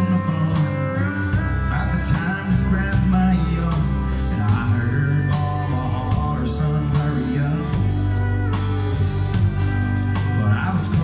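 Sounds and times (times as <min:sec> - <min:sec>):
bass guitar: 0:00.0 - 0:11.0
drum kit beat: 0:00.0 - 0:11.0
electric guitar: 0:00.0 - 0:11.0.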